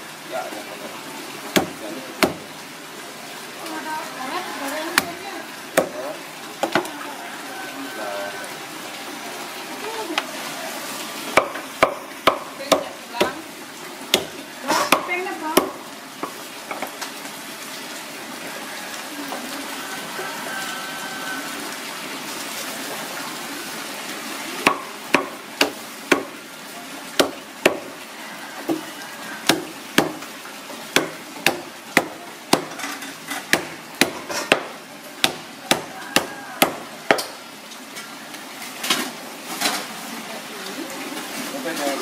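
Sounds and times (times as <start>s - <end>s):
cleaver chopping on wooden board: 1.5s - 2.5s, 5.8s - 6.0s, 11.4s - 13.4s, 14.1s - 15.8s, 24.6s - 26.4s, 27.2s - 27.9s, 29.5s - 30.2s, 30.9s - 32.8s, 33.5s - 37.4s.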